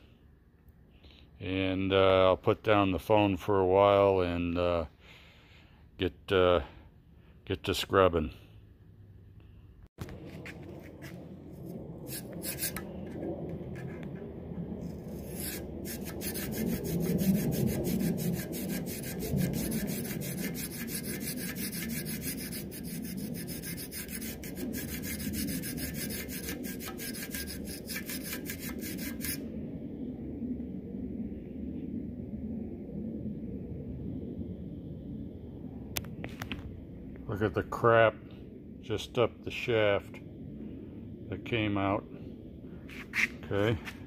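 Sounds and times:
wire brush scraping inside metal: 11.0 - 29.5.

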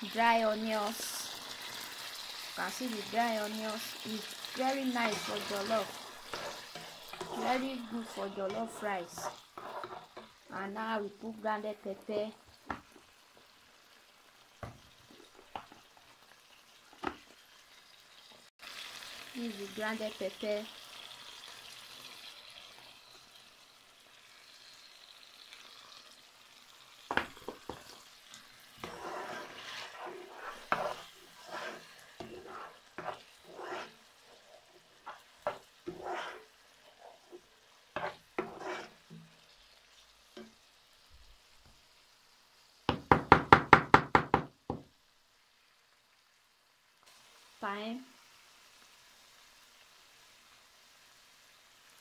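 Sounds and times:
stew sizzling in a pot: 0.0 - 52.0
spatula scraping a pan: 0.8 - 10.4, 27.1 - 39.4.

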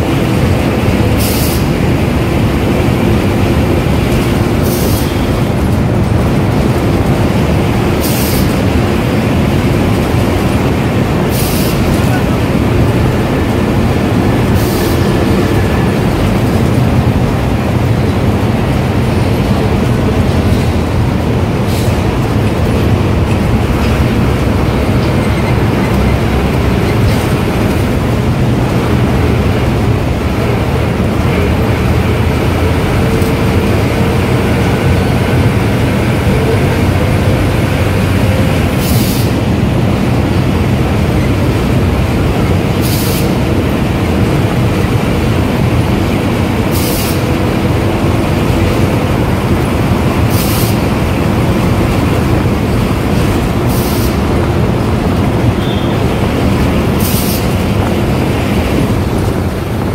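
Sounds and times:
diesel bus engine drone: 0.0 - 59.9.

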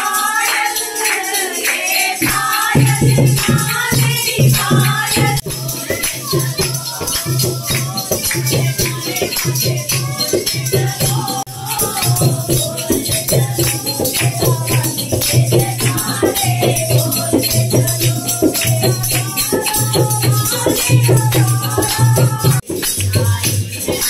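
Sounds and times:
rattling shaker percussion: 0.0 - 24.0.

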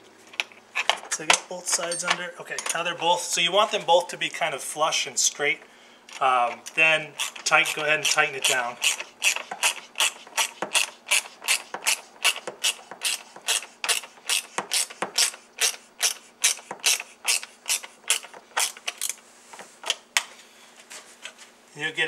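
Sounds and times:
ratchet wrench clicking: 8.8 - 19.2.

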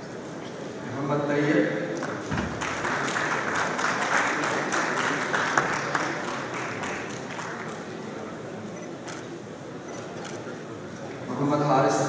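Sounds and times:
audience applause: 2.0 - 8.3.

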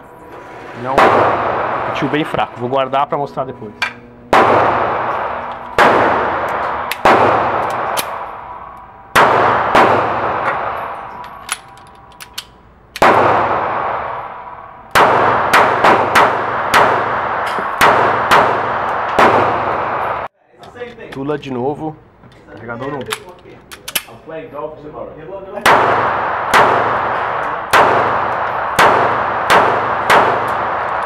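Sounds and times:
pistol shots echoing indoors: 0.9 - 2.4, 4.3 - 20.3, 25.6 - 31.0.

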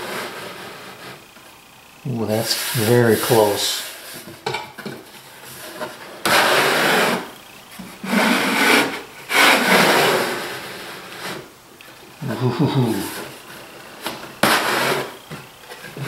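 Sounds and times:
wooden sliding lid scraping: 5.1 - 7.3, 7.9 - 11.5, 12.2 - 16.0.

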